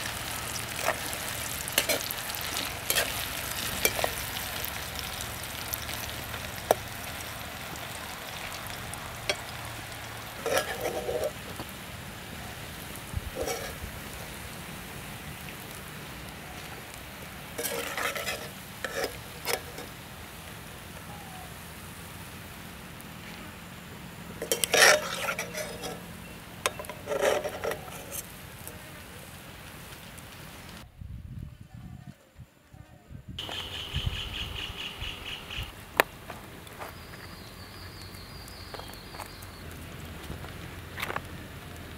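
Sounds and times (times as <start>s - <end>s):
slices deep-frying in oil: 0.0s - 30.9s
metal ladle scraping pan: 0.2s - 4.8s, 10.3s - 11.4s, 13.3s - 13.8s, 17.5s - 20.0s, 24.4s - 26.0s, 26.6s - 28.3s.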